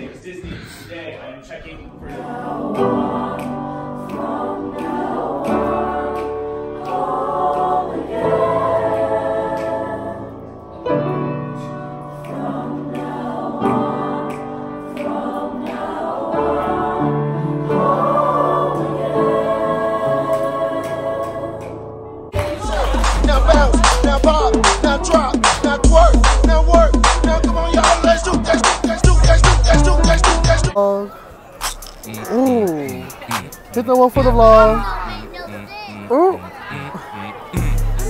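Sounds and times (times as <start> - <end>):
choir singing held chords: 1.8 - 30.8, 31.9 - 38.0.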